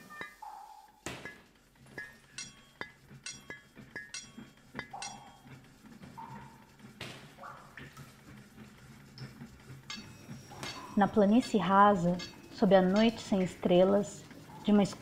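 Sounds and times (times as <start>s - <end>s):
low steady hum: 0.0s - 15.0s
metal clinks and clanks: 1.2s - 5.5s, 9.9s - 13.6s.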